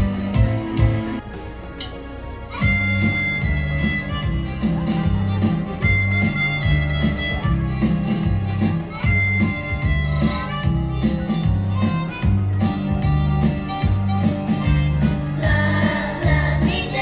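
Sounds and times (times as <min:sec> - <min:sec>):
backing music with bass line: 0:00.0 - 0:17.0
harmonica playing: 0:02.5 - 0:15.2.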